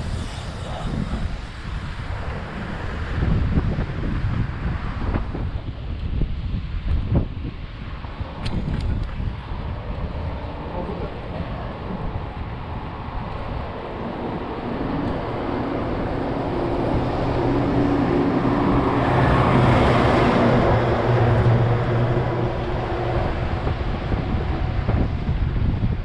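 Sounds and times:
low rumble: 0:00.0 - 0:26.0
vehicle passing by: 0:12.8 - 0:26.0.

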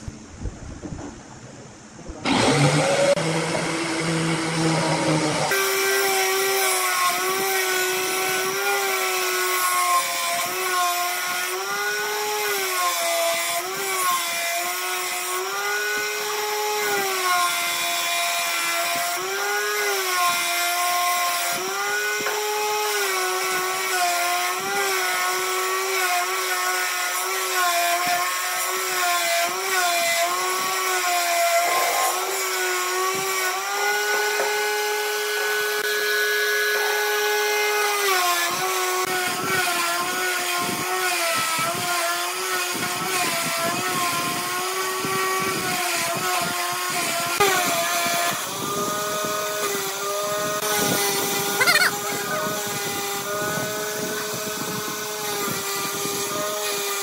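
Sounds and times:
sander motor whine: 0:02.0 - 0:12.5, 0:29.3 - 0:57.0
wood sanding rasp: 0:02.2 - 0:57.0.

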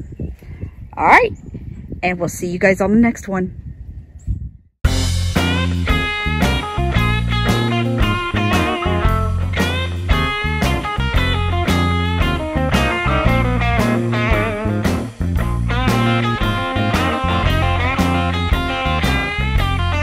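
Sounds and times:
instrumental rock music with guitar: 0:04.9 - 0:20.0.

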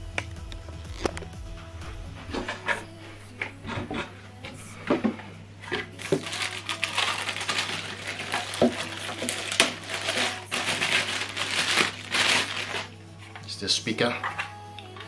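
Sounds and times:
plastic bag crinkling: 0:05.7 - 0:13.0.

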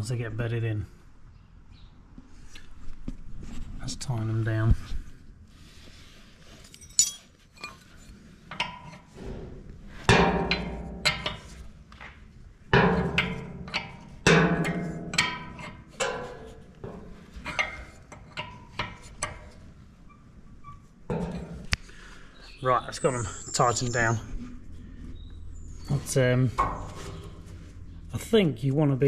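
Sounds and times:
spanner clinking on metal bolts: 0:06.7 - 0:07.9, 0:10.1 - 0:11.6, 0:12.7 - 0:19.6.

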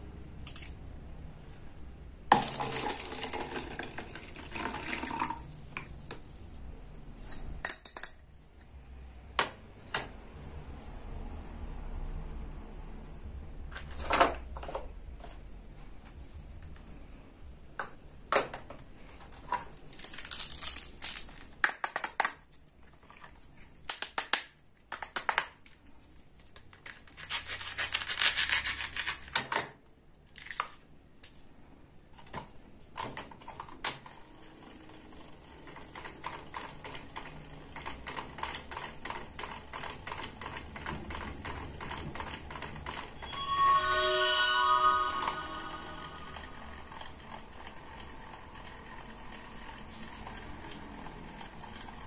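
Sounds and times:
plastic toy pieces clicking: 0:20.0 - 0:22.4.

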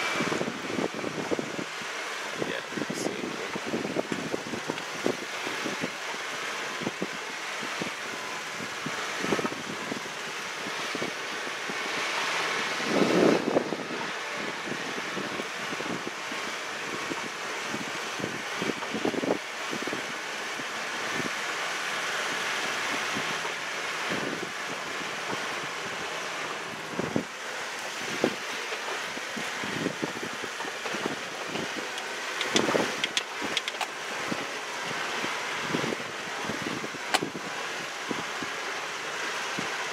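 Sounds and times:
vehicle engine and tyre noise: 0:00.0 - 0:39.9
wind buffeting microphone: 0:00.0 - 0:39.9
vehicle thumps and rattles: 0:00.2 - 0:07.3, 0:22.8 - 0:34.5, 0:35.6 - 0:37.5.

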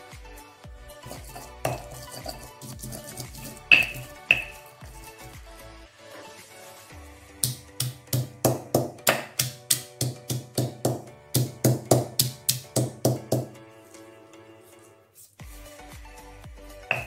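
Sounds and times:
background music: 0:00.0 - 0:17.0
stone pestle pounding in mortar: 0:01.1 - 0:04.6, 0:07.4 - 0:13.6.

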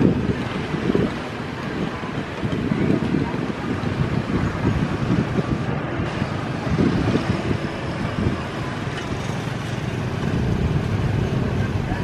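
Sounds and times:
distant jet engines rumbling: 0:00.0 - 0:12.0
wind buffeting microphone: 0:00.0 - 0:12.0.

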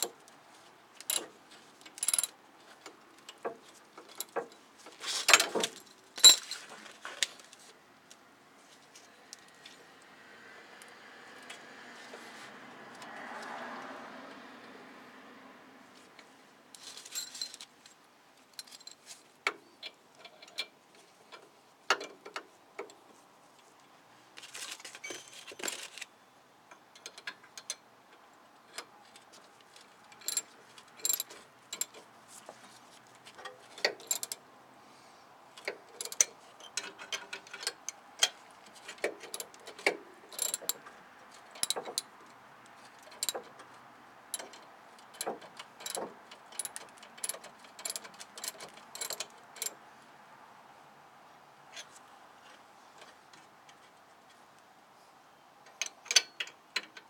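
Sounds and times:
metal tools clinking on brakes: 0:01.0 - 0:07.0, 0:16.8 - 0:17.8, 0:18.5 - 0:19.1, 0:28.7 - 0:32.1, 0:33.3 - 0:34.4, 0:35.6 - 0:49.8.

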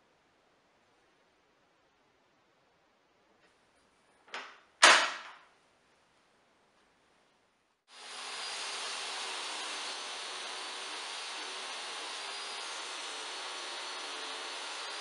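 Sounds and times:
table saw motor running: 0:07.9 - 0:15.0.

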